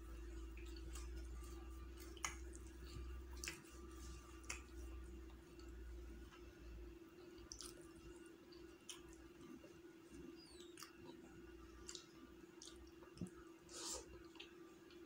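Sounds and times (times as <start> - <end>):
steady low hum: 0.0 - 15.0
wet eating clicks and squishes: 0.4 - 5.7, 7.4 - 9.4, 10.4 - 15.0.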